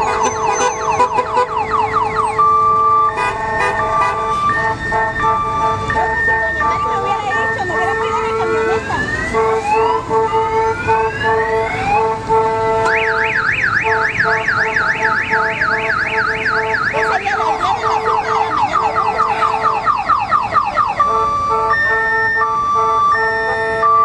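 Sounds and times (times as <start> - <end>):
horn-like tone: 0.0 - 13.2, 21.0 - 24.0
electronic vehicle siren: 0.0 - 24.0.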